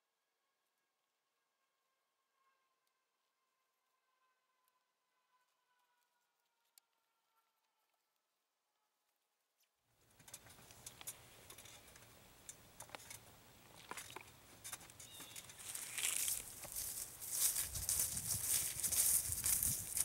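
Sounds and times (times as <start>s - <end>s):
footsteps crunching through dry leaves: 15.1s - 20.0s.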